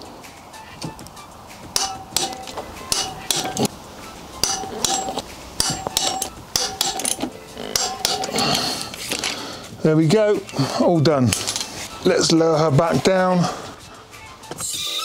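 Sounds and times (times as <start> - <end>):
torque wrench clicking: 4.4 - 9.4.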